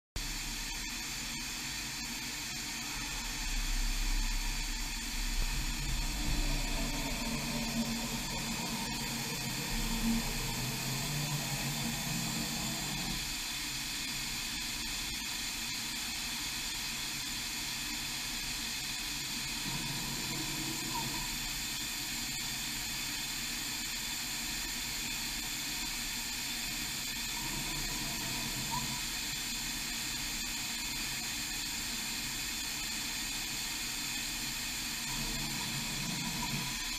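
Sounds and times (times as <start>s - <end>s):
steady hiss: 0.2s - 36.9s
machine axis drives humming: 2.0s - 15.4s, 18.6s - 23.5s, 26.6s - 30.5s, 34.6s - 36.9s.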